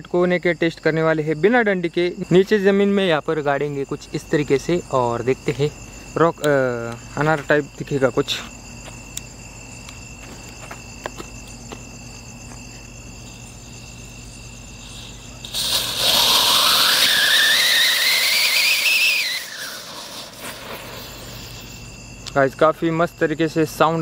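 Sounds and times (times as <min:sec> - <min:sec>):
crickets chirping: 0:00.0 - 0:24.0
firework hissing: 0:14.6 - 0:22.1
rising firework whistle: 0:14.8 - 0:22.0.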